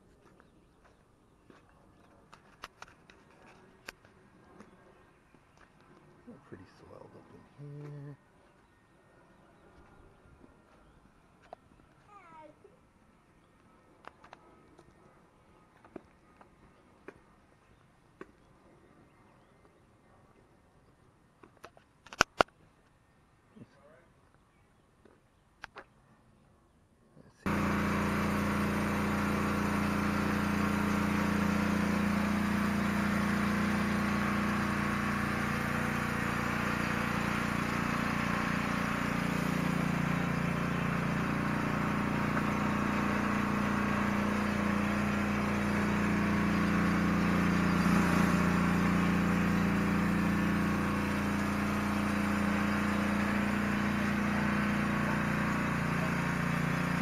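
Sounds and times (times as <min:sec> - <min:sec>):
pressure washer engine running: 0:27.4 - 0:57.0
water spraying on concrete: 0:27.5 - 0:57.0.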